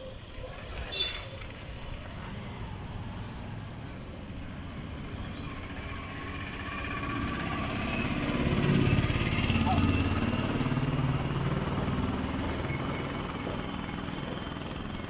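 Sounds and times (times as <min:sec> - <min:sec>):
motorcycle engine running: 0:04.4 - 0:15.0.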